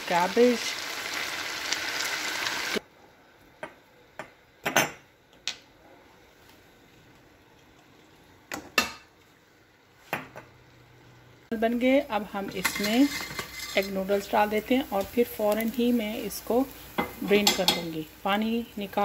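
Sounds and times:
vegetables sizzling in oil: 0.0s - 2.8s, 10.6s - 19.0s
wooden spatula scraping pan: 12.6s - 14.3s.

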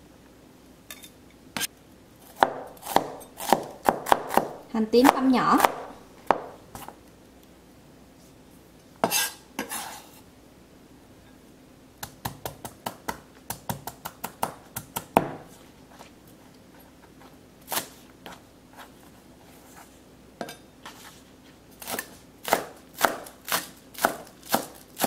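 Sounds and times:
knife chopping on cutting board: 2.3s - 6.9s, 9.0s - 10.0s, 12.0s - 15.5s, 21.8s - 25.0s.

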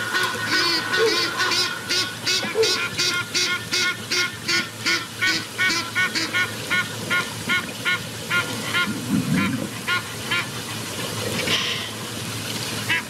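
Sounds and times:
bird calling: 0.0s - 4.6s.

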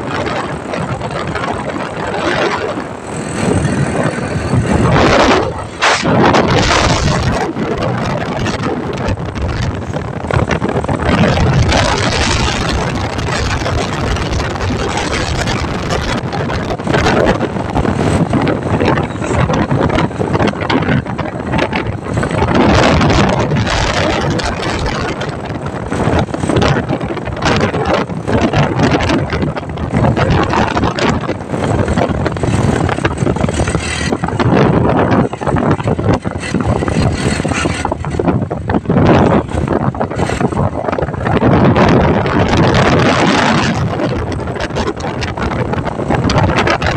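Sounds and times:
road noise: 0.0s - 46.9s
vehicle engine: 0.0s - 46.9s
wind buffeting microphone: 0.0s - 46.9s.

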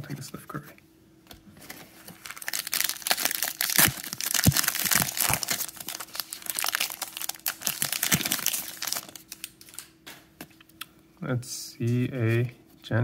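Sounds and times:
plastic wrapper crinkling and tearing: 2.1s - 10.0s.

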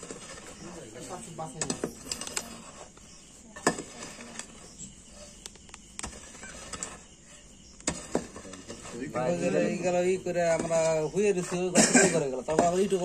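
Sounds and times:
scraping and crumbling clods: 0.0s - 13.0s
hoe blade striking soil: 7.8s - 9.9s.

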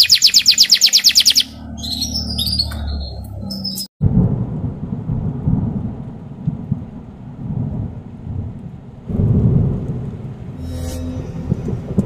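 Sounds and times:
thunder rumbling: 4.0s - 10.6s, 11.2s - 12.0s.

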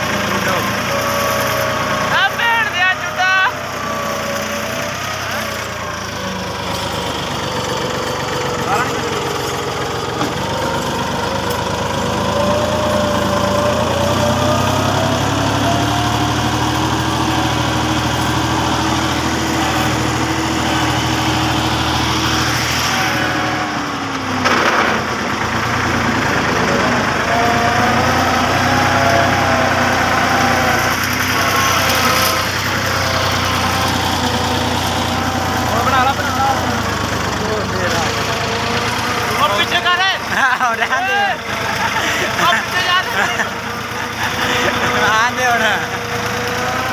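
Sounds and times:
tractor diesel engine running: 0.0s - 46.9s
engine knock: 5.7s - 12.8s, 24.0s - 28.7s, 30.4s - 46.9s.

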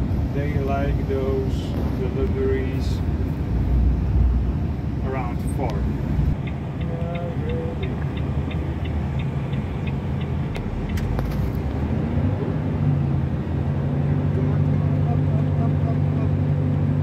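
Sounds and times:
turn signal ticking: 0.0s - 12.9s
truck engine running: 0.0s - 17.0s.

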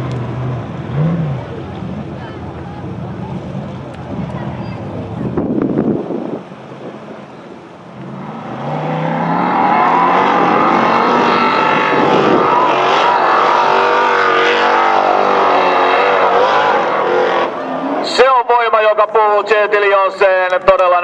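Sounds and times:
buggy engine revving hard: 0.0s - 2.1s, 8.0s - 18.2s.

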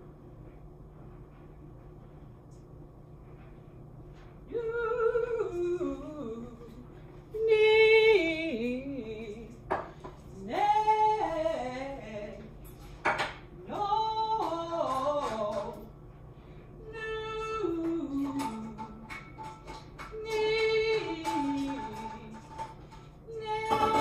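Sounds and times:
woman singing vocal warm-ups: 4.5s - 9.7s, 10.3s - 12.6s, 13.6s - 15.9s, 16.8s - 19.2s, 20.1s - 24.0s.

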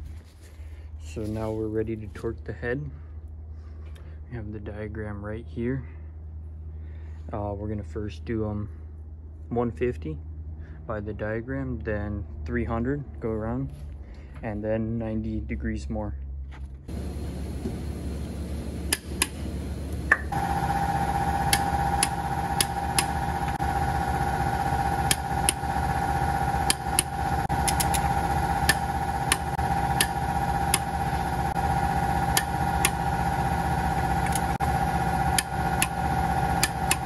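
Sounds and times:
engine-like machine hum: 16.8s - 37.0s
torque wrench clicks: 26.6s - 30.9s, 32.3s - 33.0s, 36.6s - 37.0s.

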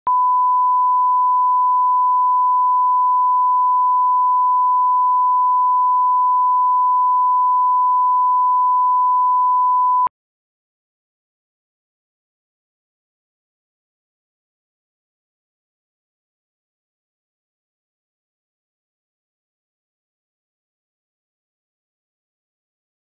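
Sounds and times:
steady pure tone beep: 0.1s - 10.1s.

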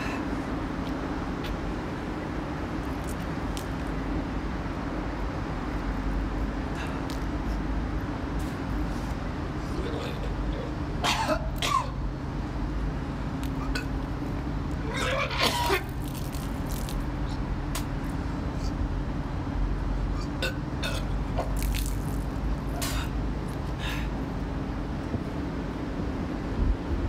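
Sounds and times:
steady low hum: 0.0s - 27.0s
man retching and coughing: 9.8s - 12.0s, 14.9s - 15.9s.

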